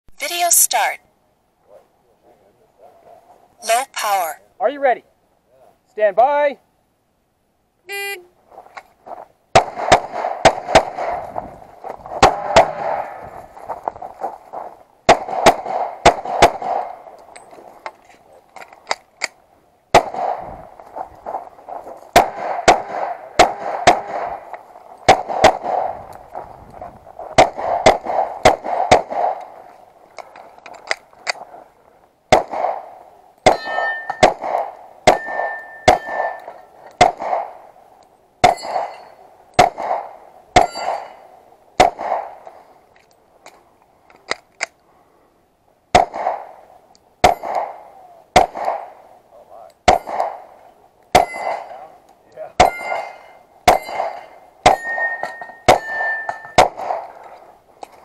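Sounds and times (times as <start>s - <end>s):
pistol shots: 9.5s - 11.4s, 12.1s - 13.2s, 15.1s - 17.1s, 19.9s - 20.5s, 21.3s - 26.0s, 27.4s - 29.6s, 32.3s - 37.7s, 38.4s - 42.5s, 45.9s - 46.6s, 47.2s - 49.1s, 49.8s - 50.5s, 51.1s - 51.9s, 52.6s - 57.3s
steel plates ringing: 33.4s - 34.2s, 35.1s - 36.7s, 38.5s - 39.2s, 40.6s - 41.2s, 51.2s - 51.8s, 52.6s - 56.6s.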